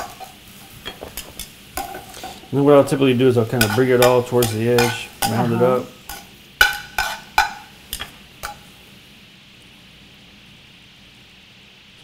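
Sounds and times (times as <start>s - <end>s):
metal tongs striking pan: 0.0s - 2.4s, 3.6s - 8.6s
faint steady hiss: 0.0s - 12.0s.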